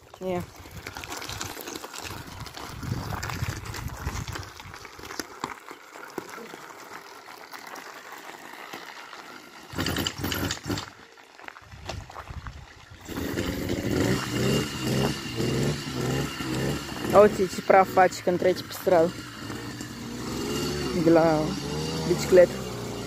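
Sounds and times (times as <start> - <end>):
two-stroke engine rumbling and rattling: 0.0 - 4.8, 9.6 - 11.0, 13.0 - 23.0.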